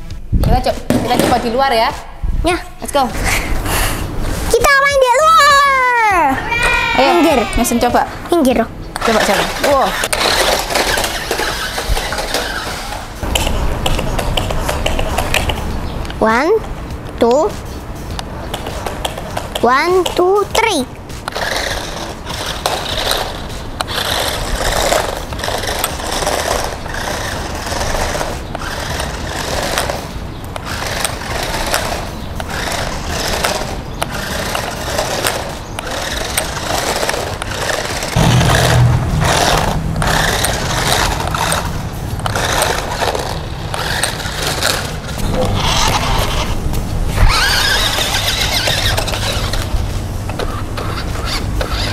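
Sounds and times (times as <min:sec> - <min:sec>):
toy wheels scraping on stone: 0:07.0 - 0:15.7, 0:17.2 - 0:51.9
toy car electric motor whirring: 0:09.0 - 0:15.5, 0:21.2 - 0:51.9
low rumble: 0:38.2 - 0:42.8.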